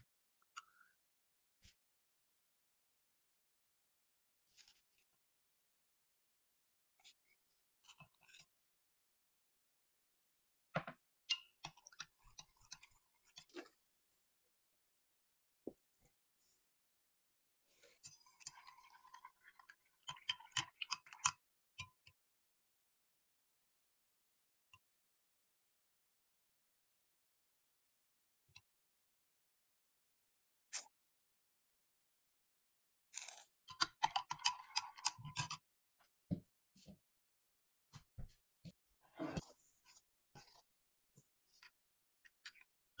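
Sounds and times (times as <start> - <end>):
spoon scraping in jug: 33.2 - 35.6.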